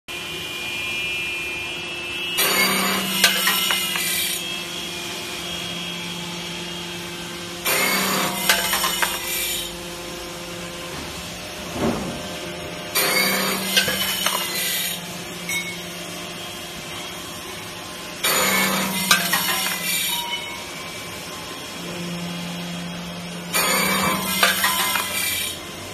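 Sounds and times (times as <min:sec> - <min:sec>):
machine motor hum: 0:00.2 - 0:25.9
saw cutting metal rod: 0:02.4 - 0:04.7, 0:07.6 - 0:09.8, 0:12.9 - 0:15.8, 0:18.2 - 0:21.0, 0:23.5 - 0:25.7.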